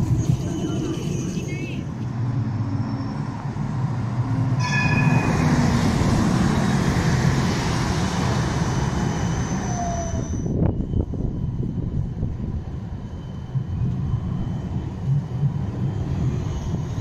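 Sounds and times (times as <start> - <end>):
tram rumble: 0.0 - 17.0
high ringing tone: 4.6 - 6.6, 8.6 - 17.0.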